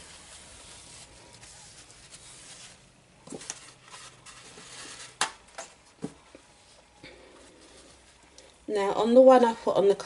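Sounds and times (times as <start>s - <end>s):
paper towel rustling and dabbing: 0.0s - 5.2s, 6.6s - 8.3s.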